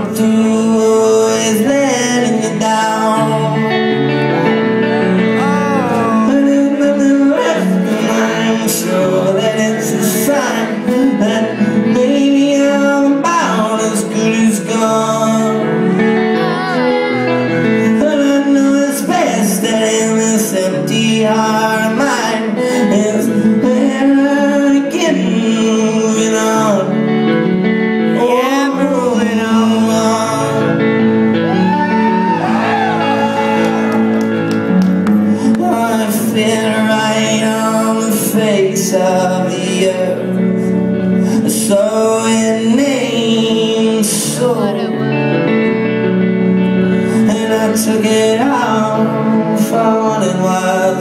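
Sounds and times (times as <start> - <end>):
man singing: 0.0 - 46.0, 46.6 - 51.0
electric guitar: 0.0 - 51.0
live rock band playing loudly: 30.0 - 36.3.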